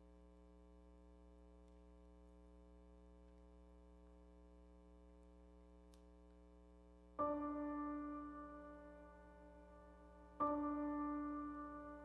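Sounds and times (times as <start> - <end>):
faint click: 5.2 - 6.4.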